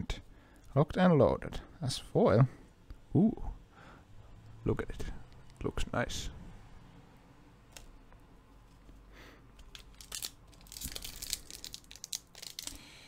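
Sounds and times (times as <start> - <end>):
foil wrapper crinkling: 9.6 - 12.9.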